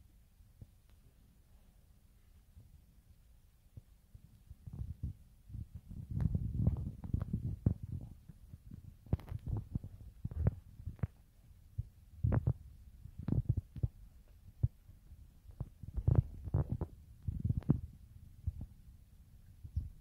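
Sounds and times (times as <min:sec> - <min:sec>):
wind buffeting microphone: 0:04.5 - 0:20.0.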